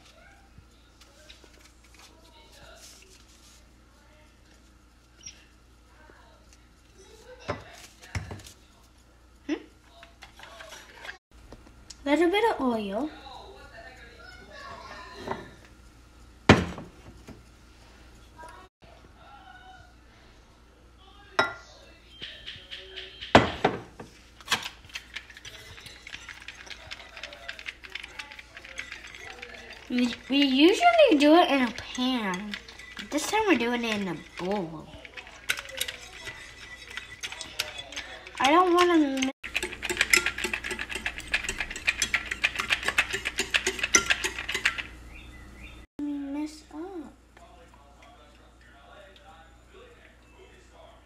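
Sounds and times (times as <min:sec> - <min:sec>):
whisk beating eggs in bowl: 0:10.0 - 0:11.2, 0:24.5 - 0:45.1
glass knocking on stone counter: 0:23.3 - 0:24.1.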